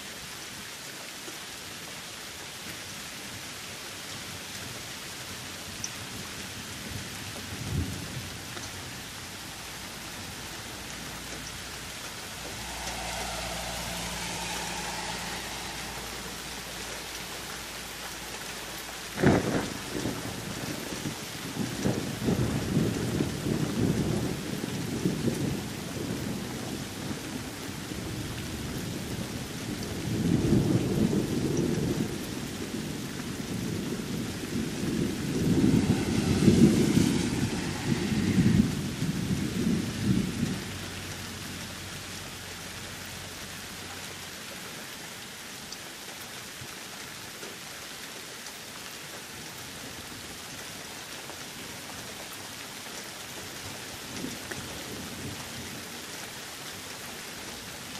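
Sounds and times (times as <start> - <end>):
steady rain: 0.0 - 57.9
rolling thunder: 7.4 - 40.8.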